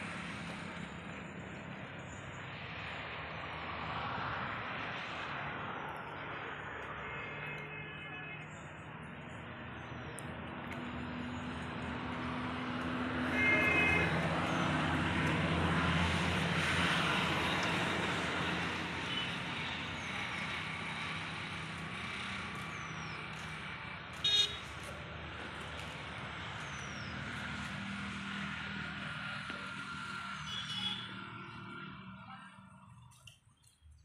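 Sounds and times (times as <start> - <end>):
vehicle passing: 0.0 - 33.1
short horn toot: 13.3 - 14.1.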